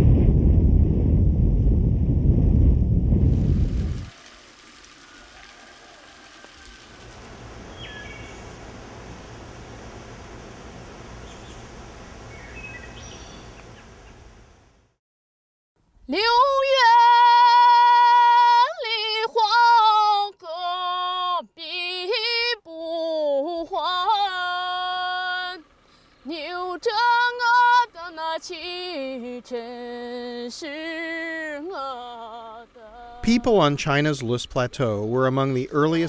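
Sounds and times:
woman singing unaccompanied: 16.0s - 33.5s.

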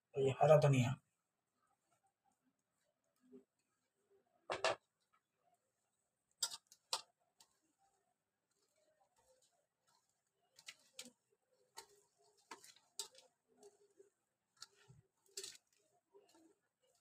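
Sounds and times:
onions crunching and rustling: 8.4s - 17.0s.

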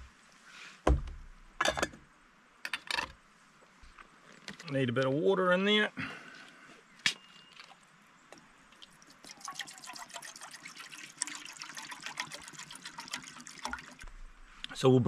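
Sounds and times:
water pouring into pot: 8.8s - 14.0s.

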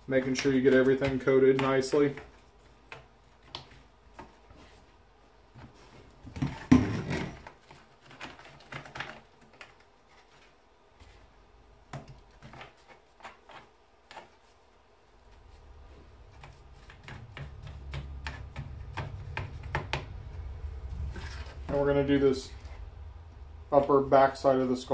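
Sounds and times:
brush tapping on bone and plastic: 0.1s - 4.7s, 15.4s - 22.8s
low rumble: 19.2s - 24.1s.

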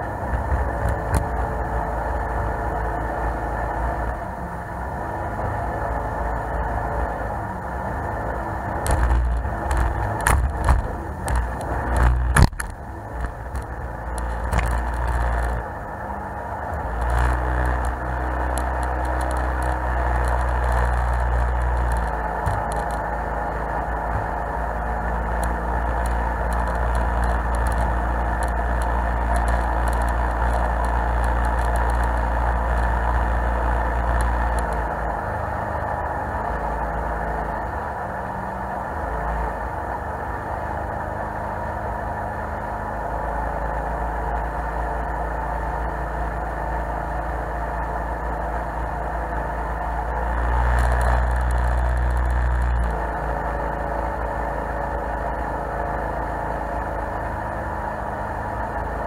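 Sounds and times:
boat engine rumble: 0.0s - 59.0s
water and hull noise: 8.8s - 15.9s, 16.6s - 24.8s.

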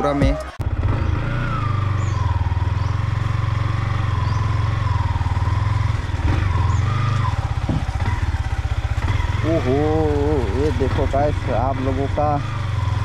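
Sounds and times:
motorcycle engine putter: 6.2s - 12.7s.

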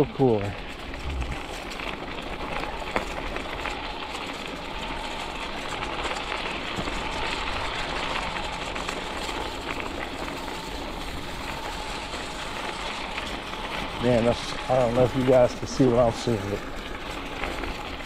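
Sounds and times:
bike tyres rolling on gravel: 0.0s - 18.0s
electric motor whine: 0.7s - 18.0s.

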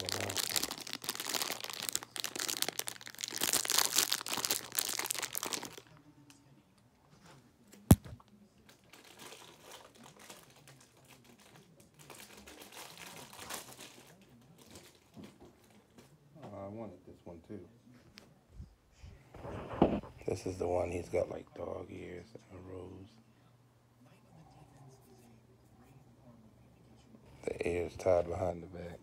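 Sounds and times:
packaging crinkling: 0.0s - 5.9s.

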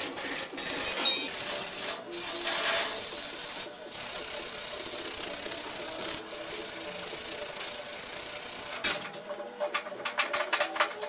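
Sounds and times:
sandpaper rubbing on steel: 0.0s - 8.8s.

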